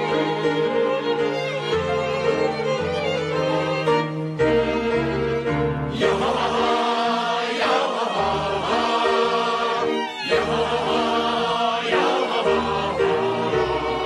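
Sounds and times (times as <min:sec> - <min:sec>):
orchestral strings: 0:00.0 - 0:14.0
choir singing slow song: 0:05.9 - 0:14.0.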